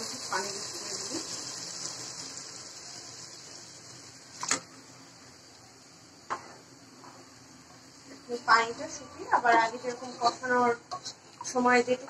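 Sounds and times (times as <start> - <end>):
water poured into pot: 0.0 - 4.6.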